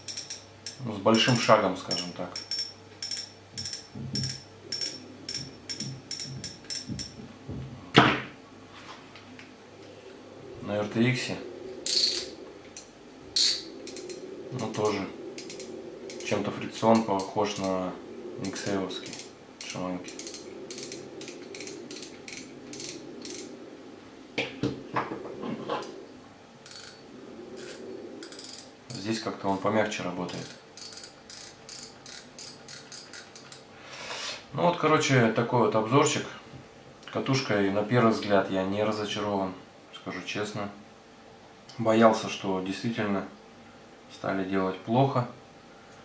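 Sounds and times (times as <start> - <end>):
metal reels knocking and rattling: 0.0 - 7.2
fishing reel drag clicking: 11.9 - 14.2, 19.0 - 23.5, 30.3 - 33.6.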